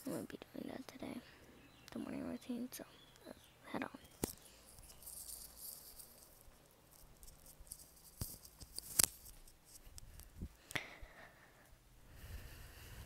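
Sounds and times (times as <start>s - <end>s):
earphone cable rustling on clothing: 3.9s - 10.6s.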